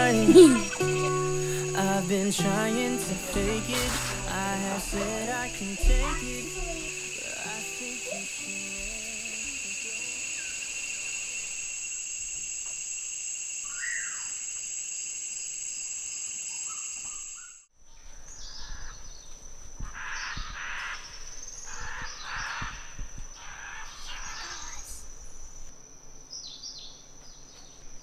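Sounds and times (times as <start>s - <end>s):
shrill insect chorus: 0.0s - 27.3s
harsh squawking bird calls: 19.9s - 25.0s.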